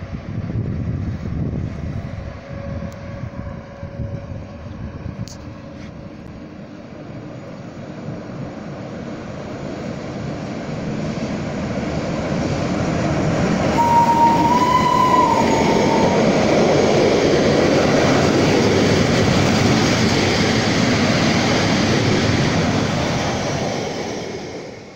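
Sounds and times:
freight train rumbling past: 0.0s - 24.9s
steady high tone: 13.7s - 17.5s.

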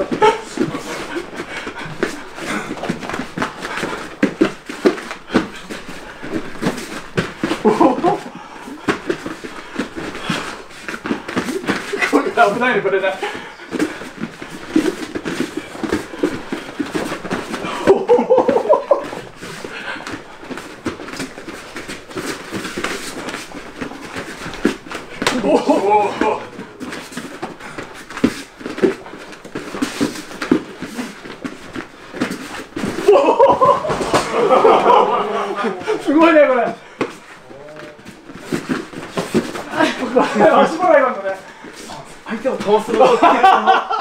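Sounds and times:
bare feet thudding on foam mat: 0.0s - 44.0s
person speaking: 11.5s - 13.6s, 25.3s - 26.9s, 34.4s - 36.8s, 37.4s - 38.1s, 39.7s - 43.8s.

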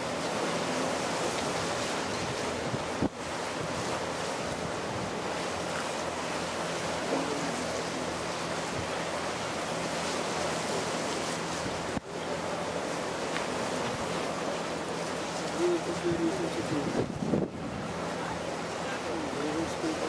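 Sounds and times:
wind on microphone: 0.0s - 5.8s, 16.0s - 18.1s
sea waves washing against stones: 0.0s - 20.0s.

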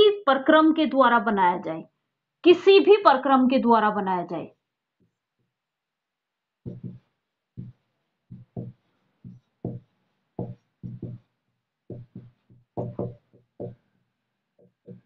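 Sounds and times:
marker writing on whiteboard: 6.6s - 14.0s, 14.6s - 15.0s.

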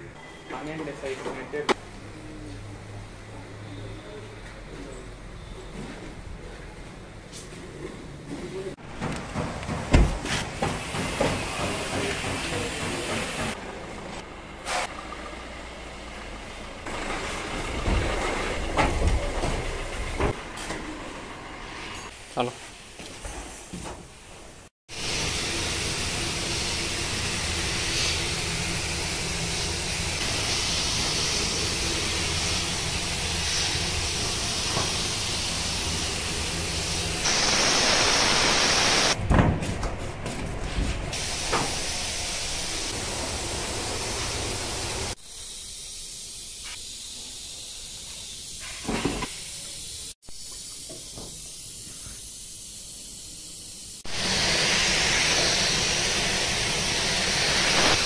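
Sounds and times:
paint spray gun hissing: 24.9s - 39.2s, 41.2s - 58.0s.

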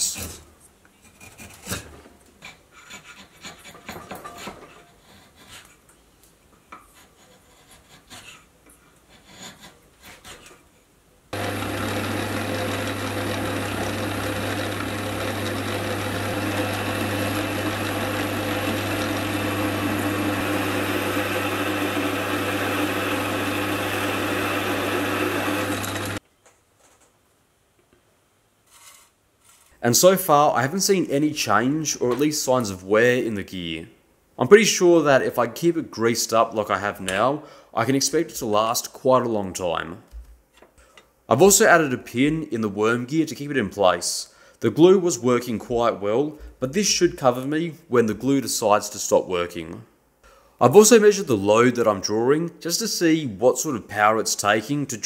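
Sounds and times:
chisel scraping wood: 1.0s - 5.8s, 6.7s - 10.6s
metal lathe humming: 11.4s - 26.2s.

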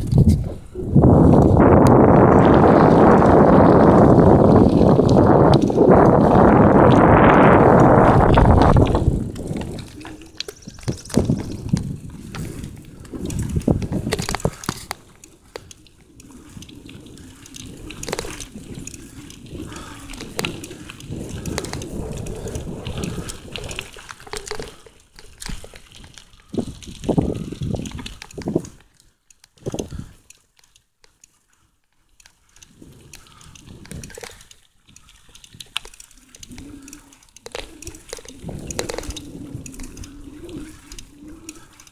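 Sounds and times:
wind rushing on microphone: 0.0s - 15.0s, 16.3s - 24.0s, 25.4s - 28.8s, 29.6s - 30.2s, 37.6s - 41.9s
bicycle rolling with rattles: 0.0s - 41.9s.

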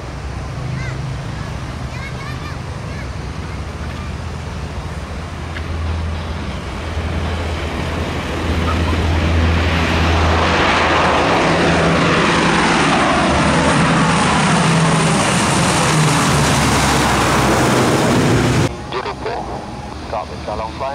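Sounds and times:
turboprop aircraft taking off: 4.2s - 20.9s.

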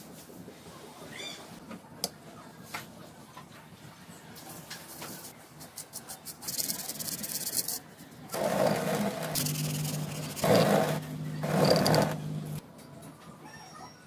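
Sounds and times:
fast rasping scrape: 8.4s - 12.2s.

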